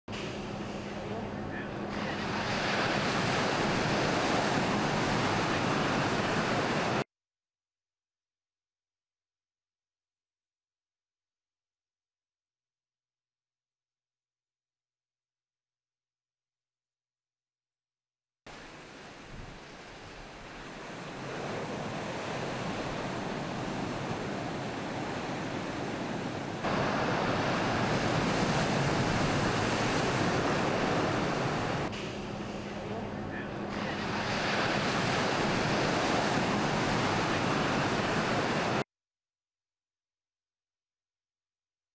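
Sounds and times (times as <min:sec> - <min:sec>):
ocean waves breaking: 0:00.1 - 0:07.0, 0:18.5 - 0:38.8.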